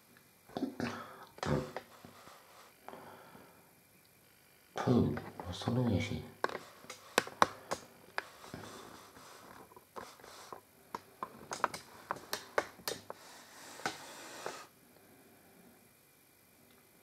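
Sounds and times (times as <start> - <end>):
sharp clicks and taps: 10.9 - 13.2.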